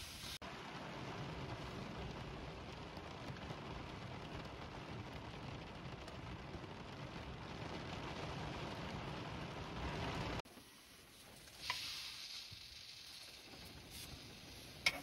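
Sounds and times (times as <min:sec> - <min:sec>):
rain pattering on windshield: 0:00.4 - 0:15.0.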